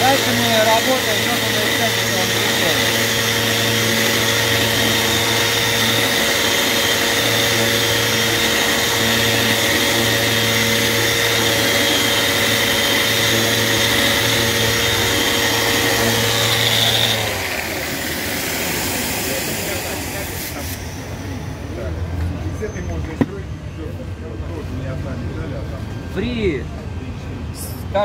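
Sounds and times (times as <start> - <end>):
orbital sander running: 0.0 - 21.9.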